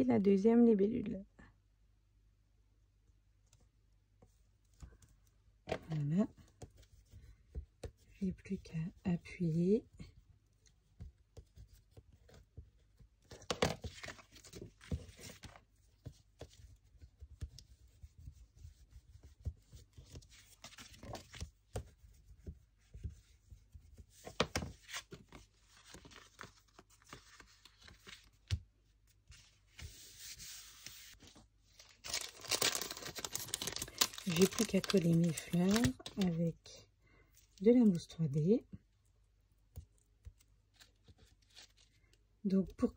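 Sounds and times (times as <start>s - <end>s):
paper rustling: 11.0s - 36.4s, 40.3s - 42.1s.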